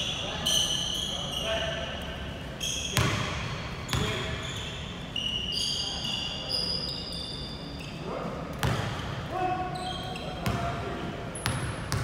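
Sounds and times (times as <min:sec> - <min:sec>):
sneakers squeaking on floor: 0:00.0 - 0:12.0
basketball bouncing on court: 0:03.0 - 0:04.4, 0:08.6 - 0:09.2, 0:10.4 - 0:10.8, 0:11.4 - 0:12.0.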